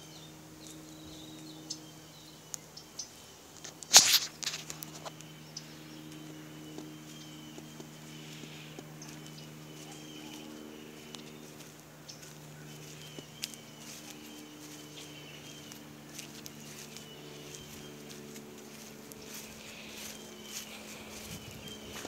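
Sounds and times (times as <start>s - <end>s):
low machine hum: 0.0s - 22.0s
footsteps: 3.6s - 5.2s, 6.1s - 22.0s.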